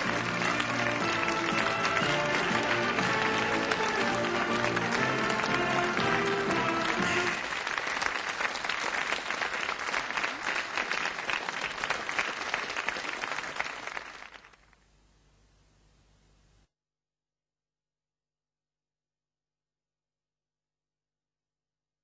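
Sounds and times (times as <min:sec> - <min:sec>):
march music: 0:00.0 - 0:07.4
audience applauding: 0:00.0 - 0:14.7.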